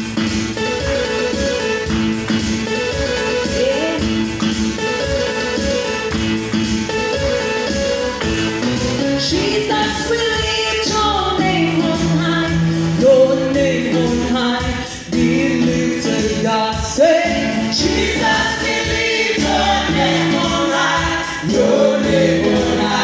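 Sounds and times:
woman singing into microphone: 9.2s - 18.5s
group of singers: 15.1s - 23.0s.

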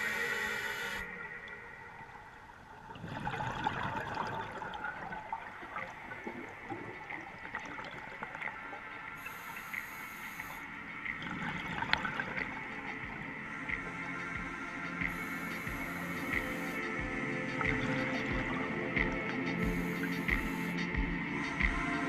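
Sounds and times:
underwater bubbles gurgling: 0.0s - 22.0s
clicks and crackles in water: 2.6s - 16.8s.

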